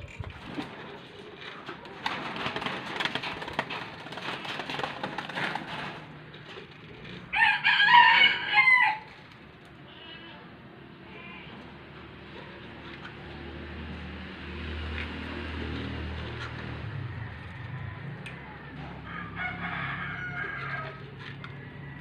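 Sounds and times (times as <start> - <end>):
rooster crowing: 7.3 - 9.1, 17.0 - 22.0.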